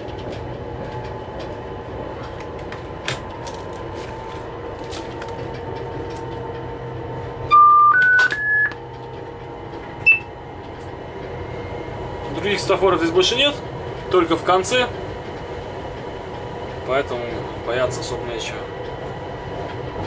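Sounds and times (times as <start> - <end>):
locomotive cab hum: 0.0 - 20.0
rising electronic chime: 7.5 - 8.7.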